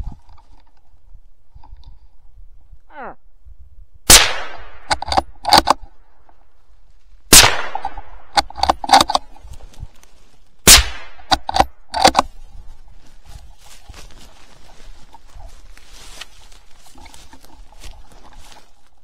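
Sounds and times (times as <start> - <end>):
rifle shots echoing: 4.1 - 5.8, 7.3 - 8.8, 10.6 - 11.8
rifle action metallic clicks: 4.4 - 5.9, 7.4 - 9.3, 10.7 - 12.3.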